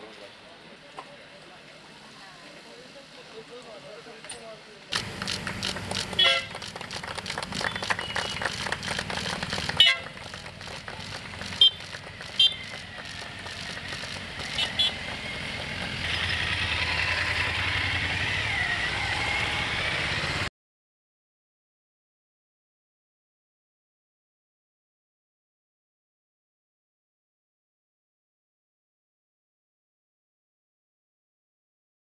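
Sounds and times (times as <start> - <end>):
spectators clapping: 4.9 - 16.0
motorcycle engines passing: 4.9 - 20.5
horn toots: 5.8 - 10.4, 11.5 - 13.4, 14.4 - 15.4.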